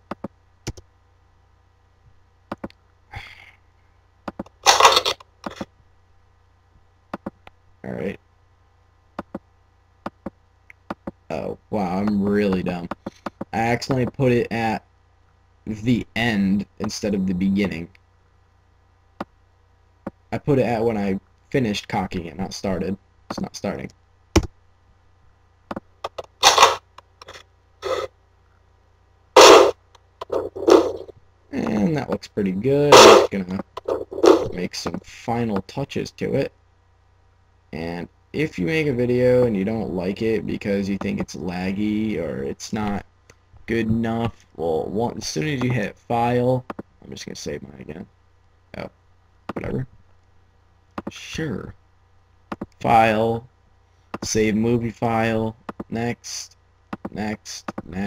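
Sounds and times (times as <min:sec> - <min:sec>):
gun sound effect: 0:26.4 - 0:26.8, 0:29.4 - 0:31.1, 0:32.9 - 0:33.6
loud gunshot: 0:32.9 - 0:33.3.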